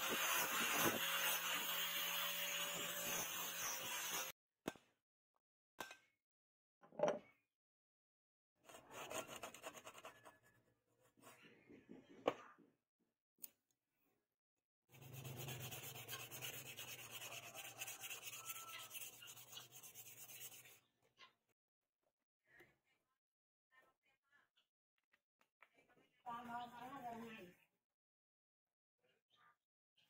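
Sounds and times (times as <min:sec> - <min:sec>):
sandpaper rubbing on wood: 0:00.0 - 0:04.3, 0:14.9 - 0:20.8.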